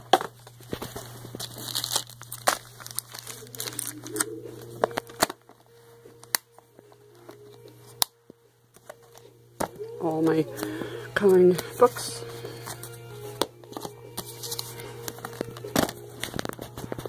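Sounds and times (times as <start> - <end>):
paper and plastic rustling: 0.0 - 8.0, 8.7 - 17.0.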